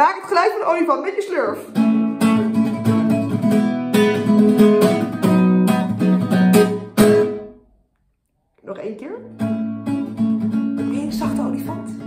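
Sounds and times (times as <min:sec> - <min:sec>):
acoustic guitar strumming: 0:01.7 - 0:07.7, 0:09.3 - 0:12.0.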